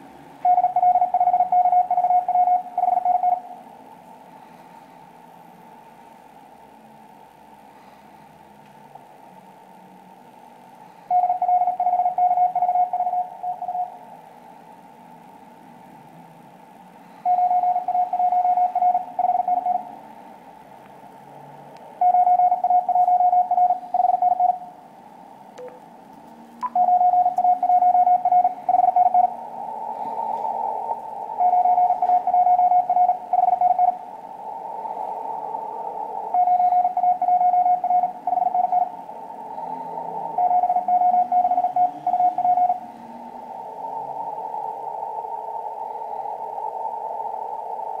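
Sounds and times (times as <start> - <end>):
radio band hiss: 0.0 - 48.0
morse code tone: 0.4 - 3.6, 11.1 - 14.0, 17.3 - 19.9, 22.0 - 24.8, 26.6 - 29.4, 31.4 - 34.0, 36.3 - 43.0.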